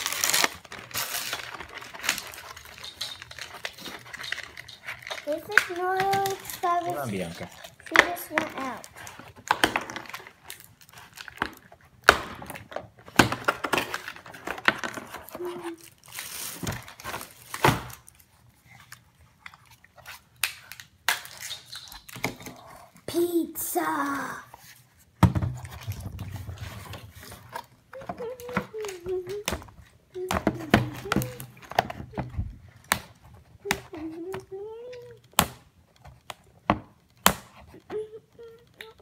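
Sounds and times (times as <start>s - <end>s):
plastic packaging crinkling: 0.0s - 11.7s, 13.8s - 22.8s.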